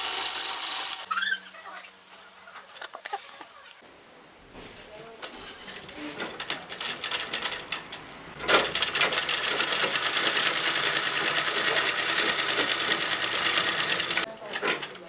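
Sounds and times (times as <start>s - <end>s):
sewing machine rattling: 0.0s - 1.1s, 8.4s - 15.0s.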